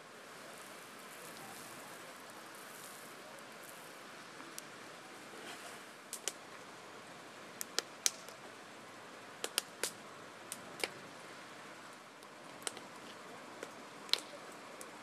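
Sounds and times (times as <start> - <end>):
smouldering timber crackling: 0.0 - 6.8, 7.4 - 8.5, 9.4 - 15.0
steady hiss: 0.0 - 15.0
sharp pops of fire: 5.5 - 6.4, 7.6 - 8.4, 9.4 - 11.0, 12.6 - 14.9.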